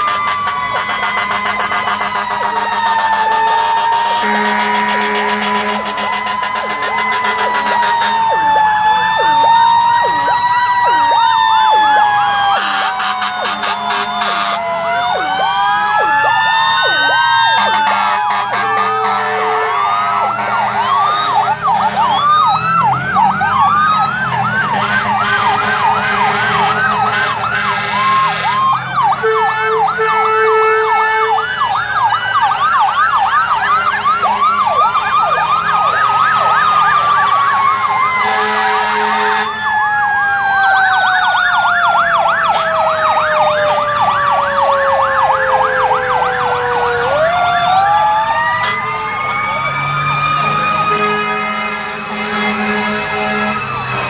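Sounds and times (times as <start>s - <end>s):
emergency sirens wailing: 0.0s - 54.0s
long horn blasts: 3.7s - 8.4s, 12.6s - 14.7s, 17.6s - 21.0s, 24.4s - 28.6s, 29.2s - 31.4s, 38.2s - 39.5s, 50.3s - 54.0s.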